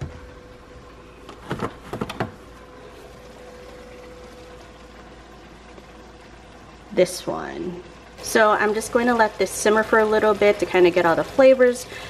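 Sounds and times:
faint steady hum: 0.0s - 12.0s
kitchen items knocking and clattering: 1.3s - 2.4s.

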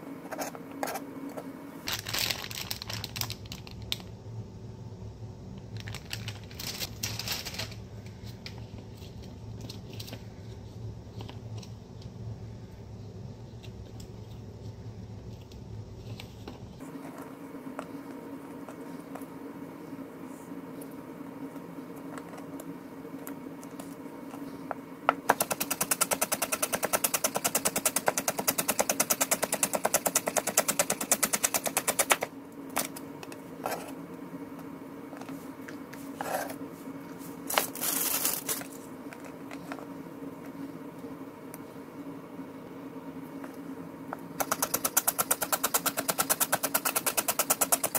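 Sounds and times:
low steady hum: 0.0s - 47.9s.

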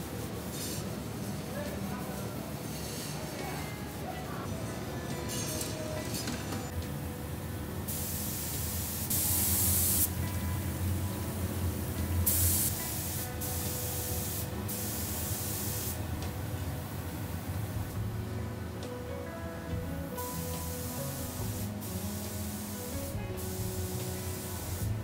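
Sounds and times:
spray gun hissing: 7.8s - 16.1s, 20.2s - 25.0s.

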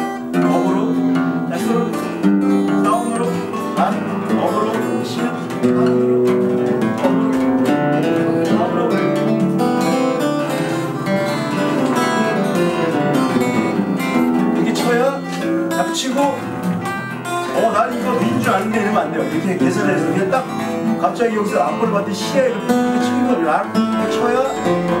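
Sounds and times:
acoustic guitar playing scale: 0.0s - 25.0s.

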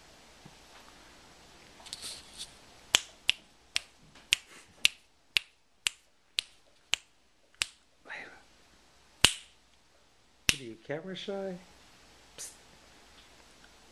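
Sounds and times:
brief rustle: 1.8s - 2.6s
fingers snapping: 2.9s - 7.8s, 9.2s - 9.5s, 10.5s - 10.7s.

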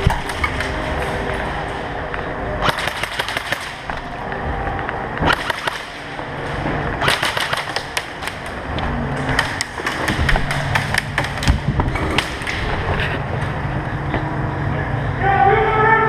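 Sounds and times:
airsoft gunfire clicks: 5.2s - 6.1s, 7.0s - 8.6s.

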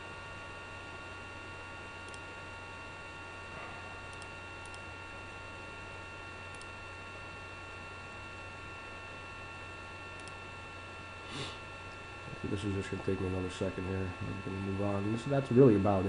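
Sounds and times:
electrical hum and hiss: 0.0s - 16.0s
faint computer mouse clicks: 4.1s - 4.8s, 6.5s - 6.7s, 10.2s - 10.4s.

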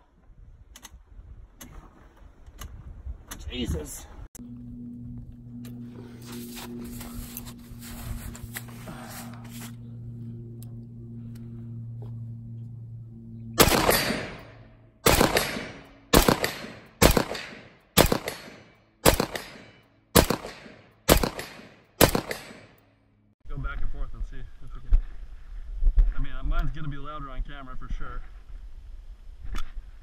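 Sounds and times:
low steady hum: 3.2s - 30.0s
rifle shots: 13.6s - 22.8s.

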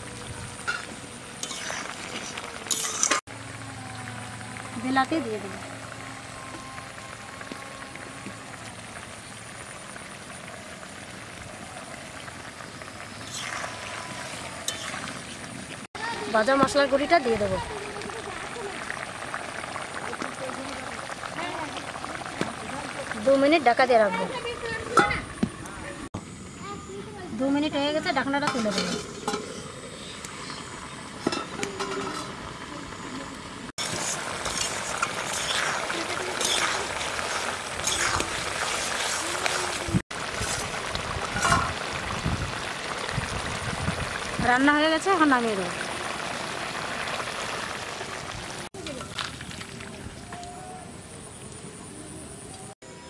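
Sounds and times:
curry bubbling in a pot: 0.9s - 24.7s, 33.8s - 50.0s
metal lid clink: 31.2s - 32.4s
spatula stirring curry: 33.8s - 40.8s.

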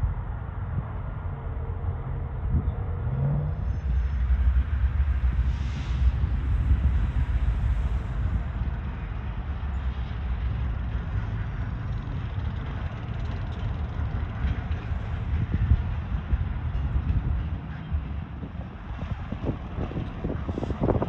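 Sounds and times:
diesel locomotives rumbling: 0.0s - 21.0s.

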